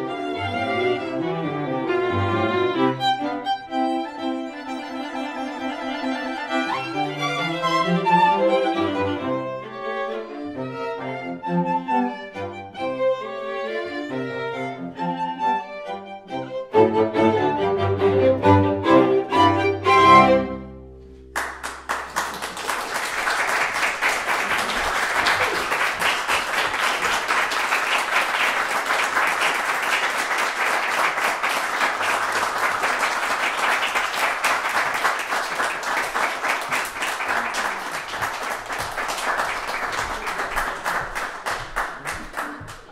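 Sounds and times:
audience applauding: 21.3 - 42.9.

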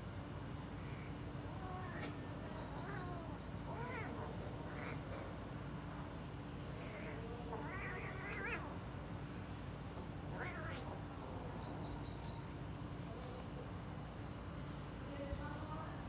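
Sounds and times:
steady low hum: 0.0 - 16.0
kittens meowing: 1.5 - 5.3, 6.7 - 8.8, 10.0 - 11.8.

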